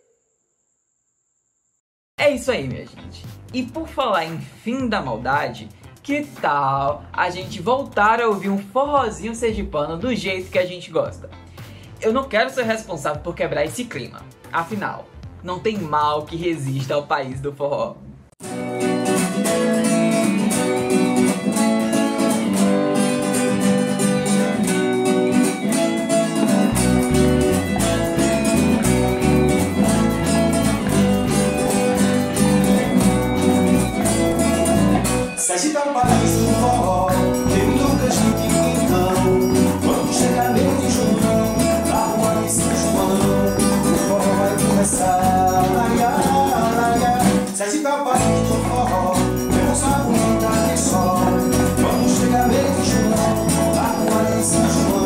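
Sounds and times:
acoustic and electric guitar: 0:02.2 - 0:15.4, 0:18.4 - 0:55.0
bass and percussion: 0:02.2 - 0:17.0, 0:19.1 - 0:35.4, 0:36.0 - 0:47.6, 0:48.2 - 0:55.0
man singing: 0:35.3 - 0:55.0.

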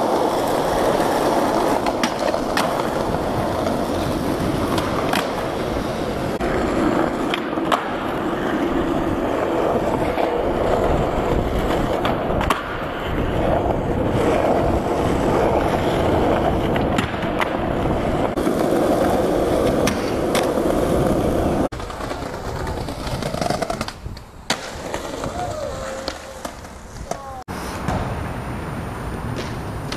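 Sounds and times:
skateboard clacks: 0:00.0 - 0:28.3, 0:29.2 - 0:29.9
skateboard wheels rolling: 0:00.0 - 0:29.9.

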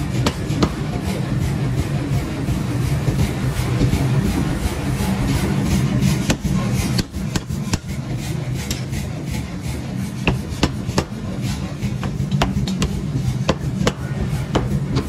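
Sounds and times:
power hammer striking metal: 0:00.0 - 0:01.2, 0:06.0 - 0:09.2, 0:10.1 - 0:15.0
low machine hum: 0:00.0 - 0:15.0.

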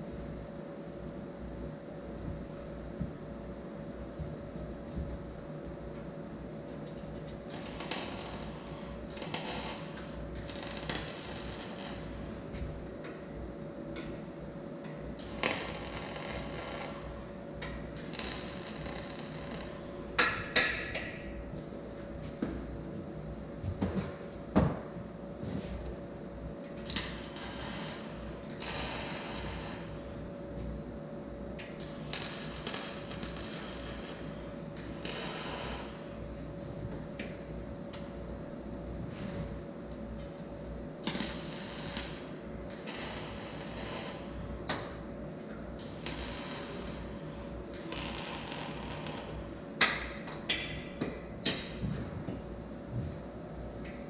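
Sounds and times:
faint steady hum: 0:00.0 - 0:54.0
arc welding crackling hiss: 0:07.4 - 0:12.5, 0:15.2 - 0:20.4, 0:26.8 - 0:30.3, 0:31.7 - 0:36.3, 0:41.0 - 0:44.7, 0:45.8 - 0:49.7.

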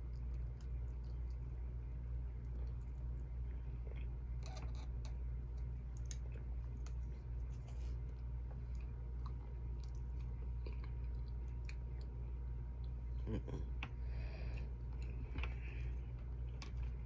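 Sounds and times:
chewing: 0:00.0 - 0:13.1
steady low hum: 0:00.0 - 0:17.0.

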